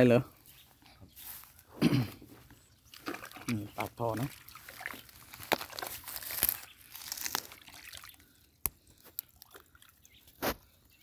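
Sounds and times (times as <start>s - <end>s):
hand squelching in wet mud: 2.9s - 10.6s.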